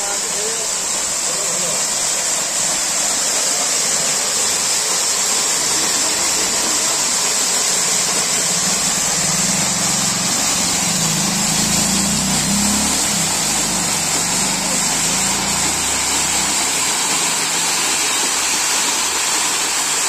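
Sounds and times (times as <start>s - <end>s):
waterfall splashing onto rocks: 0.0s - 20.0s
low engine-like hum: 8.1s - 17.0s.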